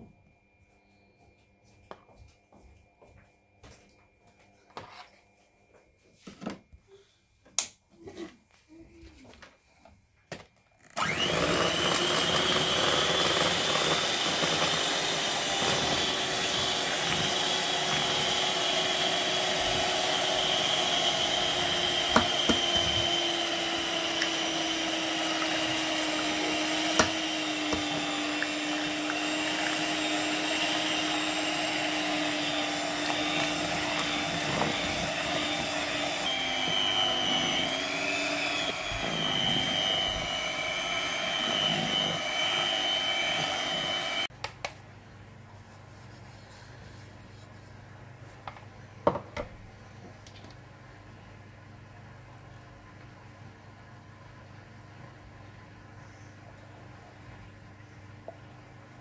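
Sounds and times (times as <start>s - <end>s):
electric hand mixer whining: 11.0s - 44.3s.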